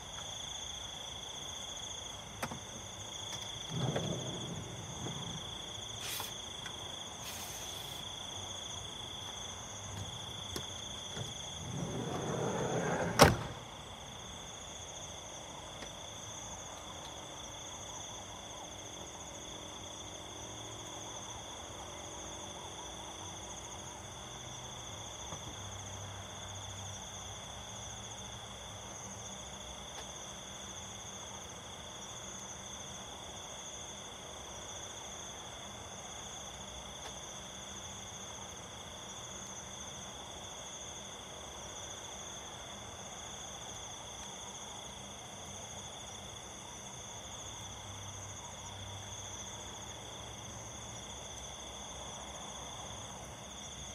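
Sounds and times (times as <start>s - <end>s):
crickets and insects chirping: 0.0s - 53.9s
sliding door slamming shut: 3.4s - 6.3s, 11.1s - 13.7s.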